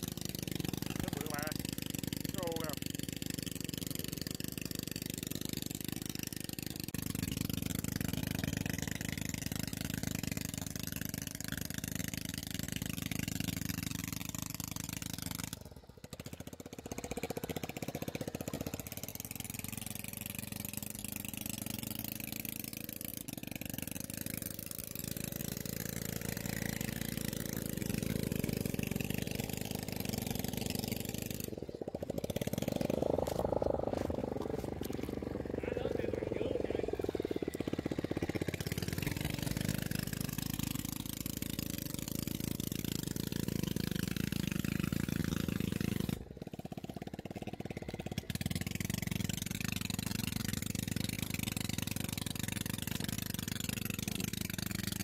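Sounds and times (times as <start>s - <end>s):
low rumbling noise: 29.5s - 40.1s
water sloshing: 33.2s - 35.3s.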